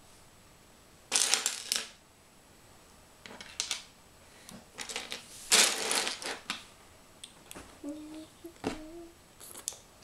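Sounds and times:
plastic bricks clattering: 0:01.1 - 0:02.0, 0:04.8 - 0:06.6.

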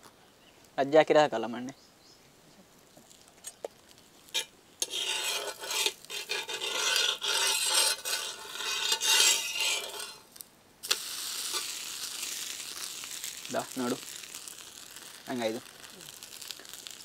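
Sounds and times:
flatbread sizzling on hot pan: 0:02.9 - 0:17.0
metal spatula scraping iron pan: 0:04.3 - 0:10.2.

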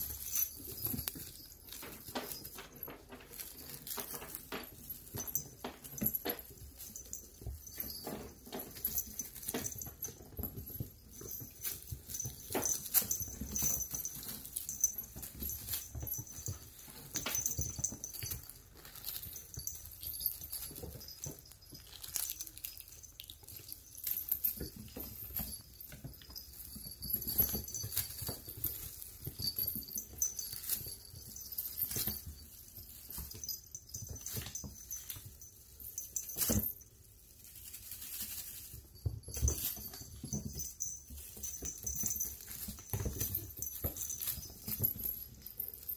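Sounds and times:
kittens' paws tapping and scuffling: 0:00.0 - 0:45.9
tinsel crinkling: 0:00.0 - 0:45.9.

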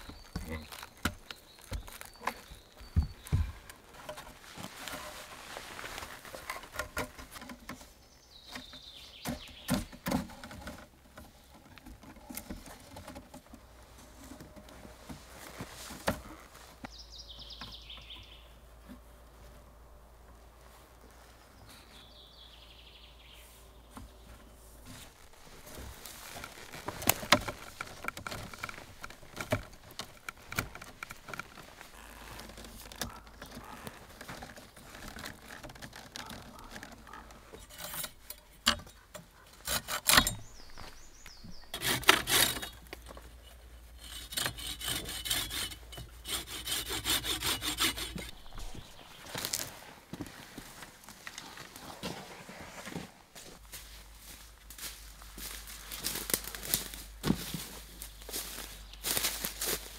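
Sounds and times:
bird singing: 0:00.0 - 0:03.9, 0:07.7 - 0:10.3, 0:16.8 - 0:18.8, 0:21.5 - 0:24.6, 0:32.0 - 0:34.8, 0:36.2 - 0:43.9, 0:47.3 - 0:49.6, 0:58.0 - 0:59.6
branches rustling and creaking: 0:00.0 - 0:59.9
sharp knocks and cracks: 0:26.3 - 0:41.0.

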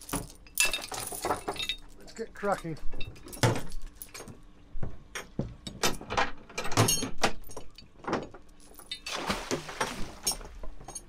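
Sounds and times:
anchor chain clanking: 0:00.0 - 0:04.4, 0:10.2 - 0:11.0.

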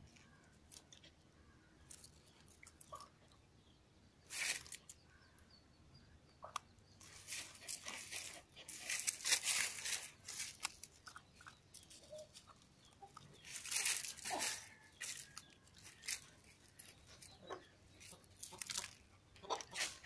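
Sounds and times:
dog chewing and crunching: 0:07.4 - 0:17.3.

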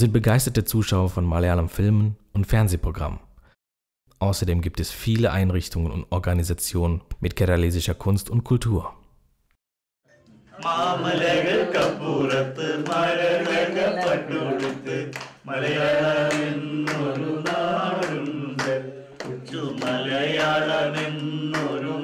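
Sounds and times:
person singing or chanting: 0:10.6 - 0:22.0.

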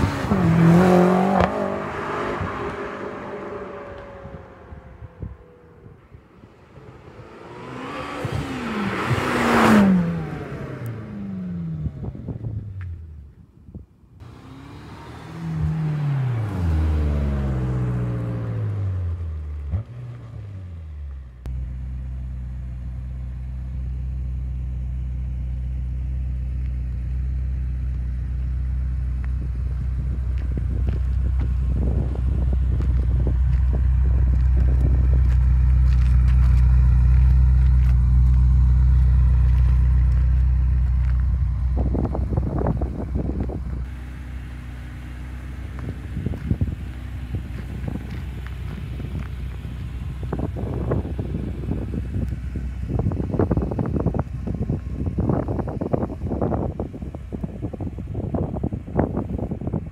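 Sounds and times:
car driving by: 0:00.0 - 0:12.4
car engine idling: 0:20.6 - 0:59.9.

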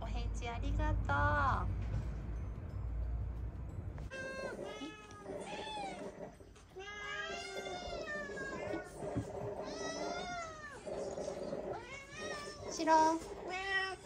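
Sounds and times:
cats meowing: 0:04.1 - 0:14.0.

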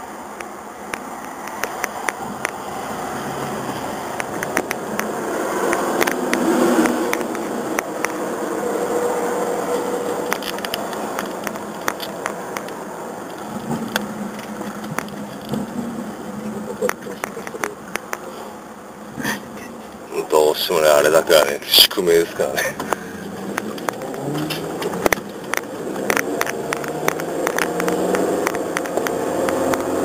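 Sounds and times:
car engine and road noise: 0:00.0 - 0:30.0
sharp clicks: 0:04.1 - 0:05.1, 0:10.3 - 0:15.7, 0:16.8 - 0:18.2.

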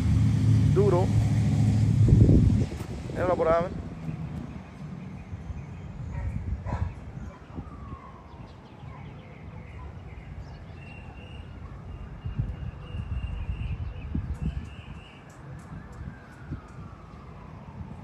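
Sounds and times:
low rumble: 0:00.0 - 0:05.0.

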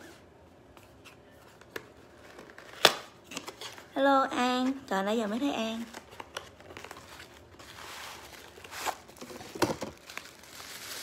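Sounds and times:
tissue paper rustling: 0:06.8 - 0:11.0.

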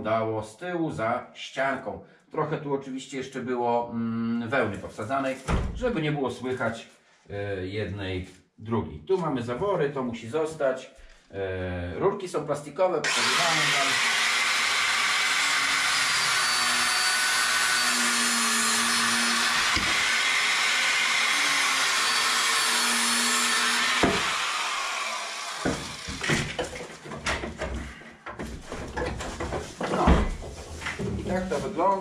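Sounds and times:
power tool cutting plastic pipe: 0:13.0 - 0:27.6
pipes clicking and knocking: 0:25.7 - 0:31.3.

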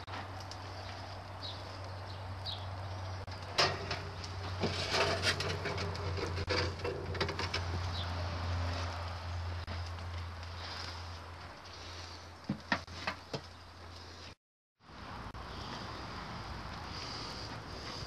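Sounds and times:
metal tray scraping and clattering: 0:03.5 - 0:08.0.

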